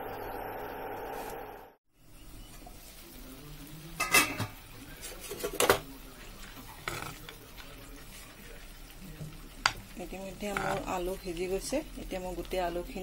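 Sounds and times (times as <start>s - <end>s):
boiling water: 0.0s - 13.0s
metal spoon scraping a pan: 6.6s - 7.3s, 10.4s - 11.0s.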